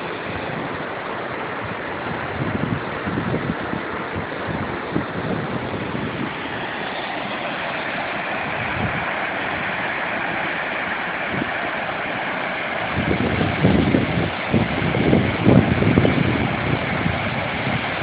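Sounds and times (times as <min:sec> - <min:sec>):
water rushing down spillway: 0:00.0 - 0:18.0
gusty low rumble: 0:01.6 - 0:09.8, 0:12.8 - 0:18.0.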